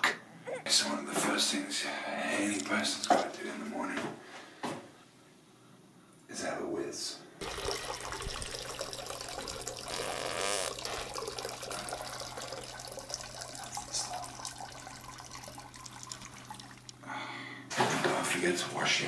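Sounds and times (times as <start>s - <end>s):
urine splashing into toilet water: 7.4s - 17.0s.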